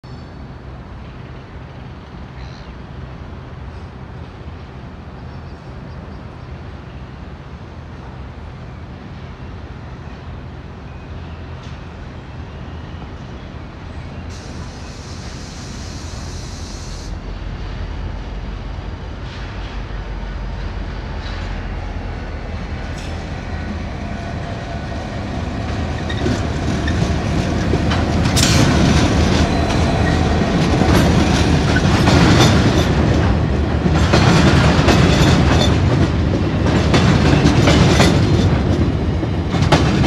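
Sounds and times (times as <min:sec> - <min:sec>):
diesel locomotive engine drone: 0:00.0 - 0:40.0
high hiss: 0:14.3 - 0:17.2.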